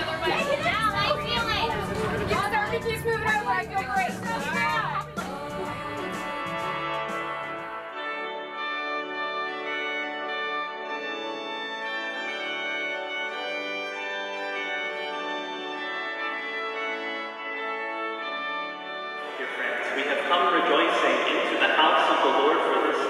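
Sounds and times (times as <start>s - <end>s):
organ playing sustained chords: 4.9s - 23.0s.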